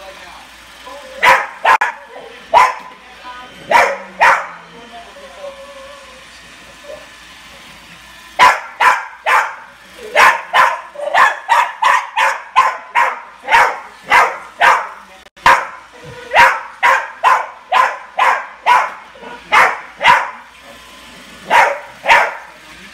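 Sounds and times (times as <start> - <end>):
small dog barking: 1.2 - 2.9, 3.7 - 4.6, 8.4 - 20.5, 21.4 - 22.5.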